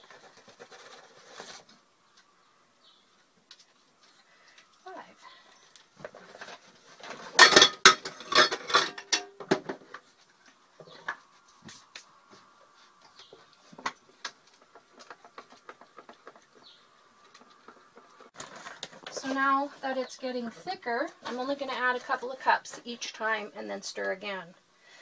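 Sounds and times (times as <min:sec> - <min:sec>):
utensils clinking metal bowl: 0:06.3 - 0:09.5.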